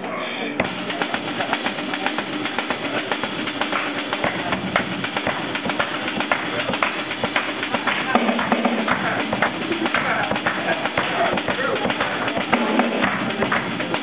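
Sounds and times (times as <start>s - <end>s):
crowd clapping: 0.7s - 14.0s.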